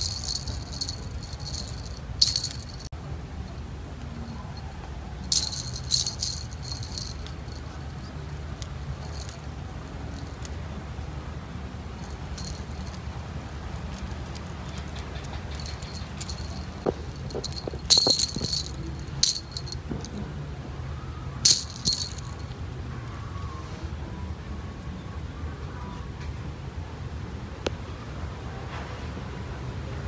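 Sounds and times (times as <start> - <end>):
small jingle bells jingling: 0.0 - 2.9, 5.2 - 8.1, 8.7 - 9.5, 12.0 - 13.1, 13.9 - 20.2, 21.4 - 22.5.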